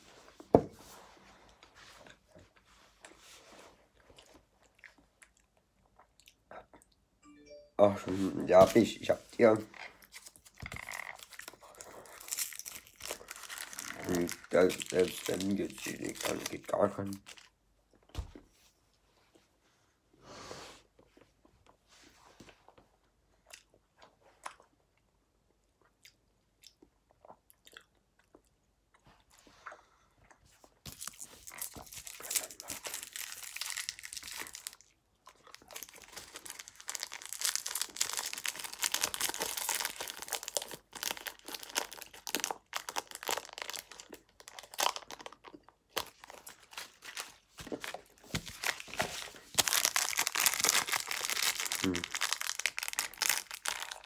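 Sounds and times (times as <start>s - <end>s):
crunching and crinkling wrappers: 8.5s - 17.6s, 30.8s - 54.0s.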